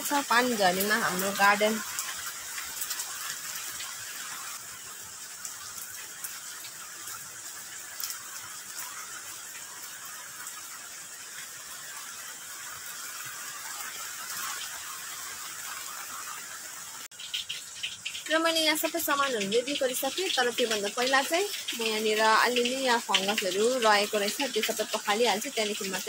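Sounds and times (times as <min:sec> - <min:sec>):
steady rain hiss: 0:00.0 - 0:26.0
small drip ticks: 0:05.3 - 0:15.0, 0:17.1 - 0:26.0.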